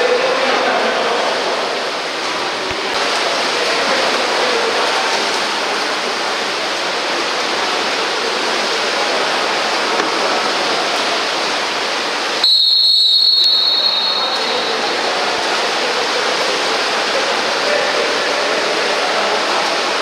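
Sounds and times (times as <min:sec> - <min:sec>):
pool water splashing: 0:00.0 - 0:20.0
shrill referee whistle blast: 0:12.4 - 0:14.8.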